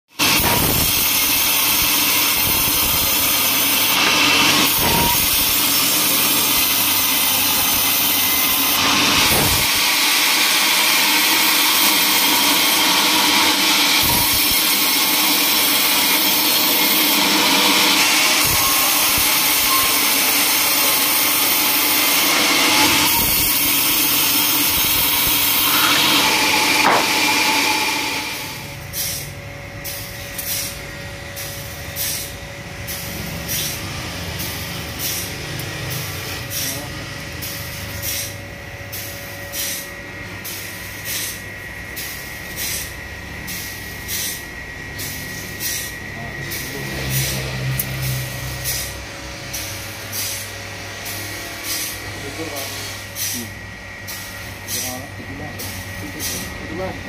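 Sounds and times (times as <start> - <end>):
sawmill machine running: 0.1 - 57.0
band saw blade cutting log: 0.2 - 29.3.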